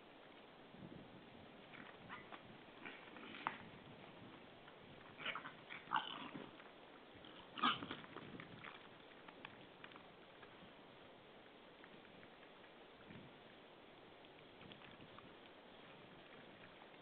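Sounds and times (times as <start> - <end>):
wild boar short calls: 7.2 - 8.0.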